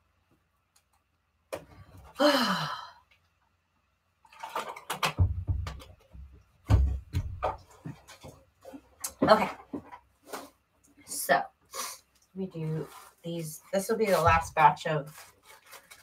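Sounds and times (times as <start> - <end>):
person sighing: 2.1 - 3.1.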